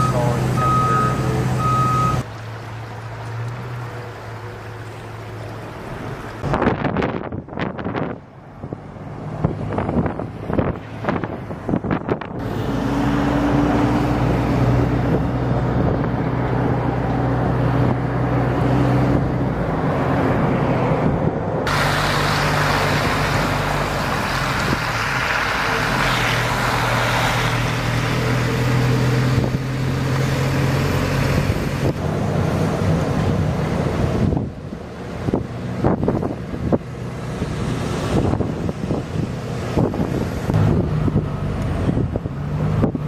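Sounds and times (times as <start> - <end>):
road and wind rush: 0.0 - 43.0
vehicle engine humming: 0.0 - 43.0.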